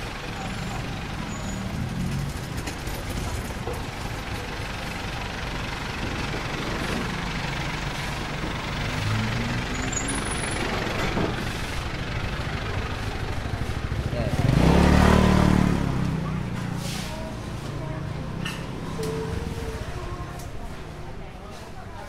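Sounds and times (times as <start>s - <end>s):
street traffic engines: 0.0s - 22.0s.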